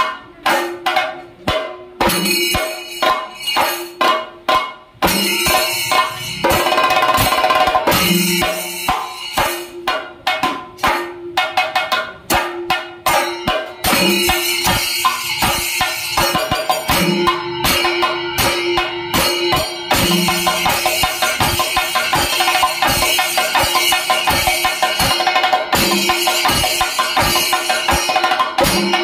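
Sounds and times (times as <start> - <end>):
drums beaten with sticks: 0.0 - 29.0
ringing cymbals: 2.0 - 9.9, 12.9 - 29.0.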